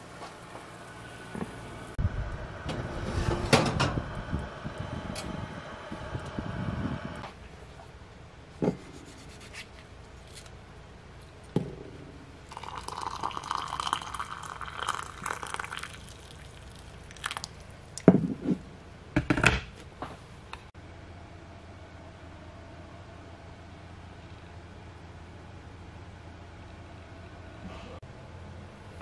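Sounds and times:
water pouring into a mug: 0:12.5 - 0:17.6.

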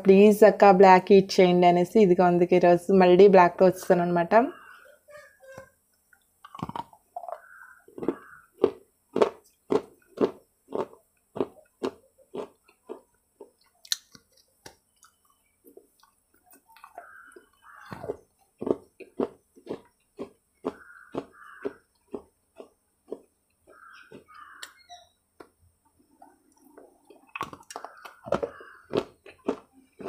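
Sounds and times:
crunchy bites and chewing: 0:06.4 - 0:24.8, 0:26.2 - 0:30.0.

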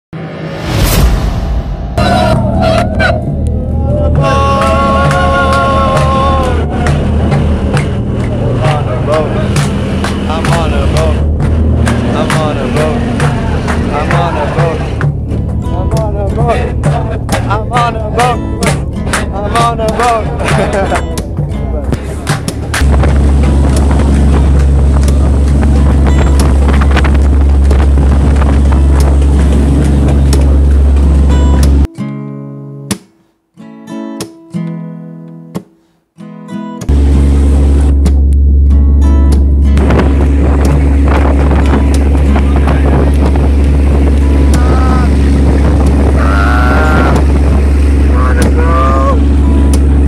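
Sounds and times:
ferry engine droning: 0:00.2 - 0:31.9, 0:36.9 - 0:50.0
wind buffeting microphone: 0:00.6 - 0:31.9, 0:36.9 - 0:50.0
man yelling: 0:02.0 - 0:06.8, 0:46.2 - 0:47.3, 0:48.1 - 0:49.2.

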